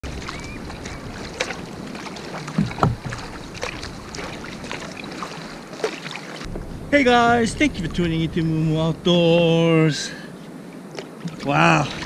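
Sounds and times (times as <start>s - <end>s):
paddle splashing in water: 0.0s - 6.8s, 10.9s - 12.0s
hiss of water and wind: 0.0s - 12.0s.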